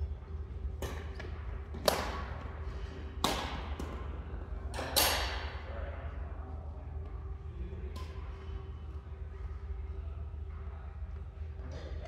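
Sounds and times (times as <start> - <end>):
rackets hitting shuttlecock: 0.7 - 2.5, 3.1 - 5.6.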